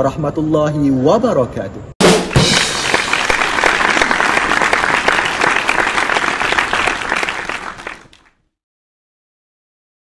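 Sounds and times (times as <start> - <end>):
crowd applause: 2.1 - 8.3.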